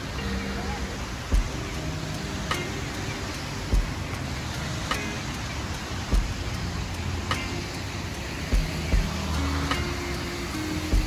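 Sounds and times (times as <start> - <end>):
rain falling: 0.0 - 11.0
low thumps: 1.3 - 1.6, 3.7 - 4.0, 6.1 - 6.4, 8.5 - 9.8.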